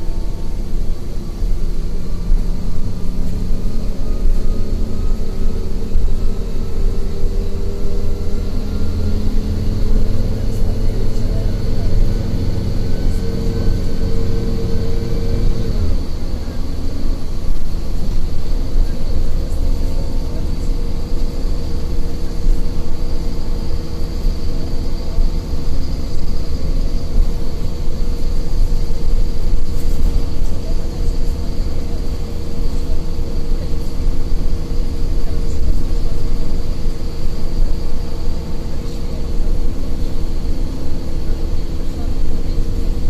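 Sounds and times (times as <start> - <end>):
bus engine and road rumble: 0.0 - 43.0
faint high whine: 0.0 - 43.0.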